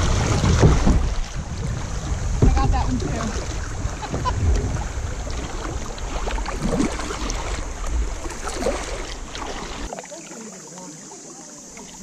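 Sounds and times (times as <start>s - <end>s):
low microphone rumble: 0.0s - 9.3s
paddle splashing in water: 0.0s - 12.0s.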